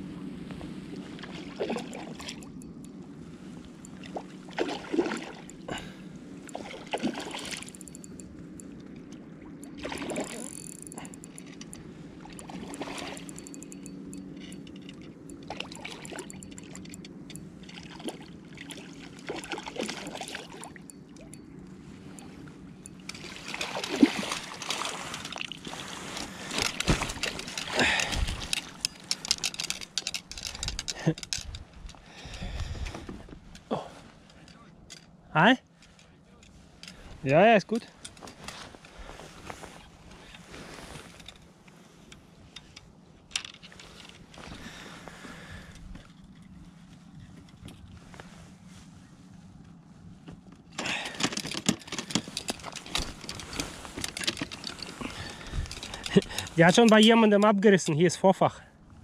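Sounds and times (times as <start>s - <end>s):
steady low hum: 0.0s - 57.1s
water splashing and sloshing: 0.2s - 58.0s.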